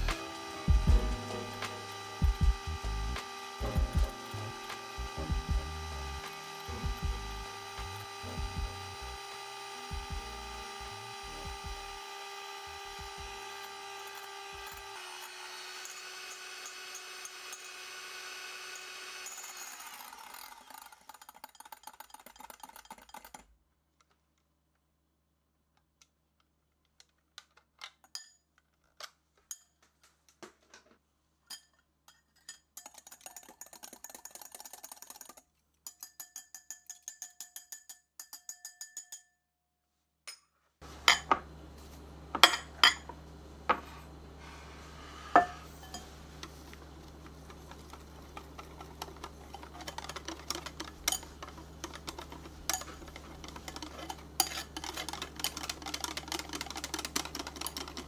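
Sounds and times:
whisk beating batter: 0:00.0 - 0:10.8, 0:15.5 - 0:23.4, 0:32.8 - 0:39.1, 0:45.0 - 0:58.0
whisk clanking against glass bowl: 0:32.4 - 0:39.2, 0:47.2 - 0:58.0
beaters clinking on glass bowl: 0:35.9 - 0:39.4, 0:45.3 - 0:46.2.

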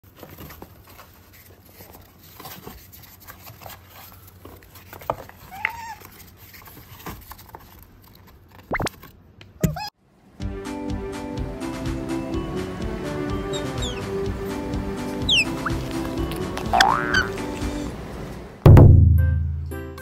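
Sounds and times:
paws scratching on cardboard: 0:00.1 - 0:08.6
loud rising squeak: 0:13.5 - 0:14.1, 0:15.2 - 0:15.8
short chirping call: 0:13.5 - 0:14.1, 0:15.2 - 0:15.8.

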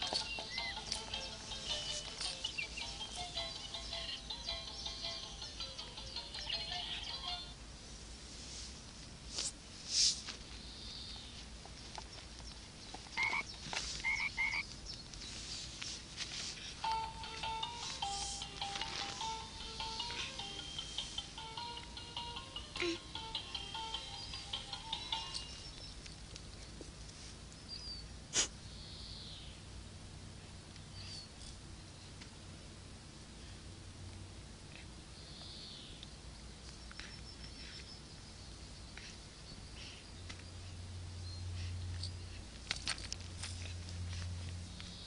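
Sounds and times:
simple beeping tune: 0:16.9 - 0:25.7.

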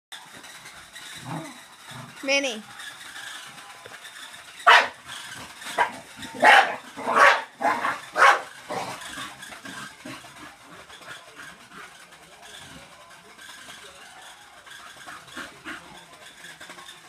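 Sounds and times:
dog barking: 0:04.7 - 0:05.0, 0:05.8 - 0:08.5.

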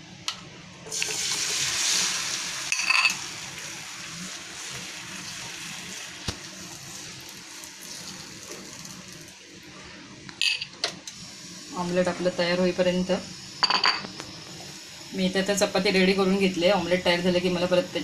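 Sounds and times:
egg batter sizzling in a pan: 0:00.9 - 0:09.6.

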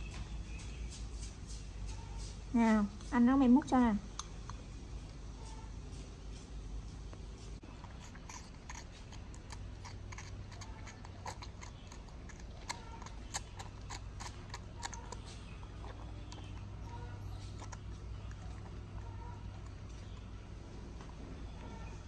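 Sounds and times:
low steady hum: 0:00.0 - 0:22.0
monkey gnawing on spoon clicks: 0:07.7 - 0:20.3.

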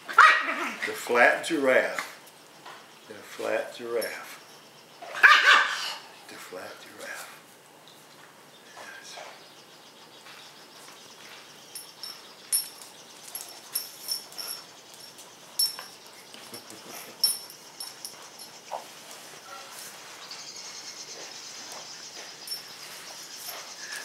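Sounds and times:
light jingles: 0:03.4 - 0:04.8, 0:11.0 - 0:20.4, 0:21.6 - 0:24.0.

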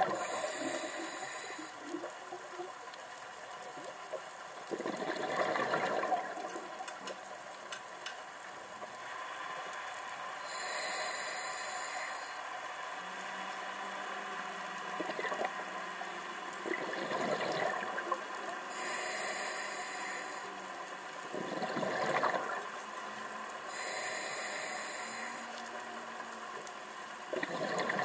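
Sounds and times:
regulator air hiss: 0:00.0 - 0:02.0, 0:10.4 - 0:12.5, 0:18.7 - 0:20.7, 0:23.7 - 0:25.8
gurgling burst of bubbles: 0:04.7 - 0:06.6, 0:16.6 - 0:18.1, 0:21.3 - 0:22.6, 0:27.3 - 0:28.0.

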